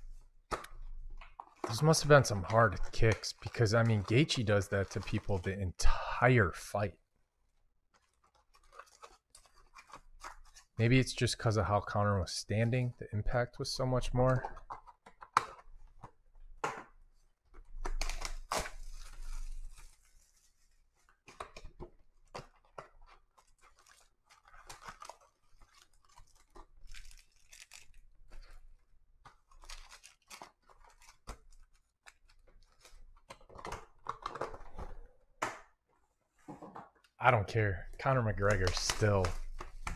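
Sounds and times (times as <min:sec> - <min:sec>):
foil packs crinkling: 0:08.0 - 0:10.7, 0:17.9 - 0:21.4, 0:22.2 - 0:34.7.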